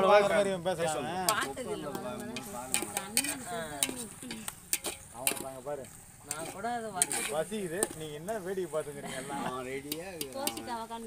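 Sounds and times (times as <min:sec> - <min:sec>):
onions and tomatoes sizzling: 0:00.0 - 0:11.0
voices talking: 0:00.0 - 0:11.0
metal spoon scraping a pot: 0:02.3 - 0:08.0, 0:09.8 - 0:10.9.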